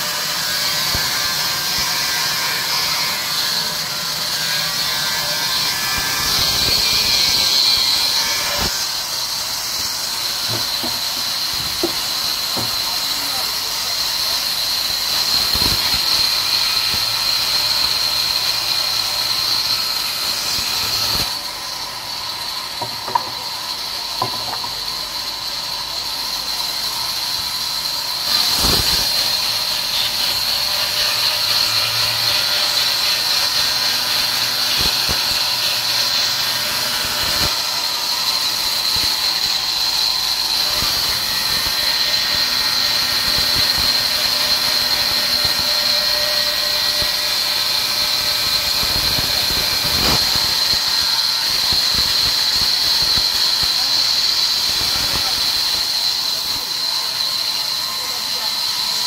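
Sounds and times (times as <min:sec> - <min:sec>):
band saw cutting log: 0:00.0 - 0:59.0
sharp knocks: 0:10.4 - 0:12.8.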